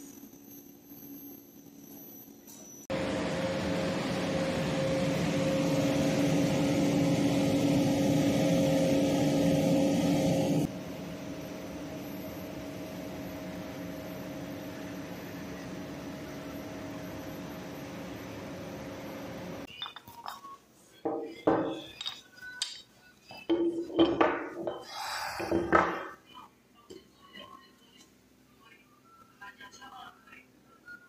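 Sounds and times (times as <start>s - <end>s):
coating line machine hum: 2.9s - 19.7s
metal parts clinking: 19.7s - 20.5s, 21.7s - 22.9s.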